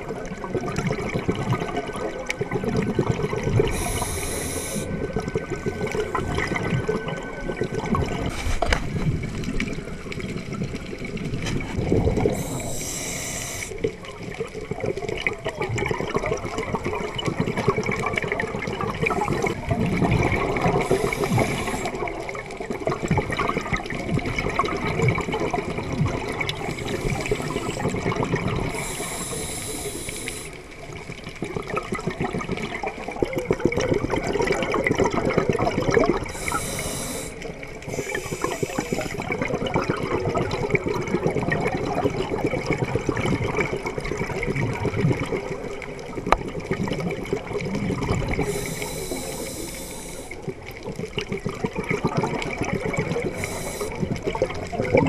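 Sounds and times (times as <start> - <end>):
diver breathing through regulator: 3.6 - 4.9, 12.2 - 13.8, 20.7 - 22.0, 26.6 - 28.0, 28.7 - 30.6, 36.3 - 39.2, 48.4 - 50.4, 53.3 - 54.1.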